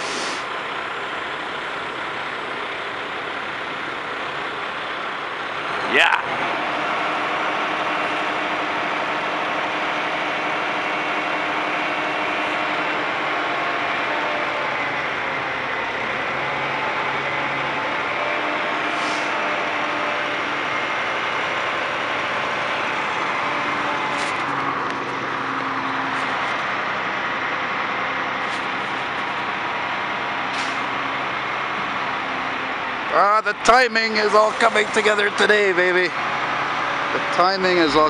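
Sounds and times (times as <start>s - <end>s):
short high hydraulic hisses: 0.0s - 0.5s, 18.9s - 19.4s, 30.5s - 30.8s
diesel truck engine running: 0.0s - 38.0s.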